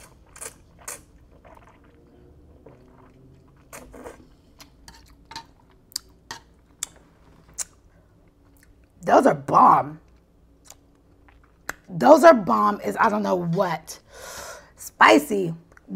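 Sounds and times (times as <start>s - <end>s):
slurping noodles: 0.0s - 5.0s
wet chewing: 0.0s - 8.9s.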